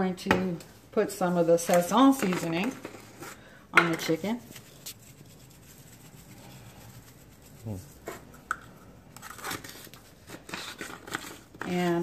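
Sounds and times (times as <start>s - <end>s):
spice shaker sprinkling: 4.4s - 8.3s.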